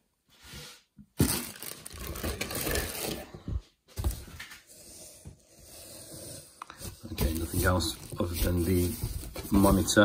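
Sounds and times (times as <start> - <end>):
plastic crinkling: 1.2 - 3.3, 7.2 - 10.0
cardboard rustling: 1.2 - 4.5, 6.7 - 10.0.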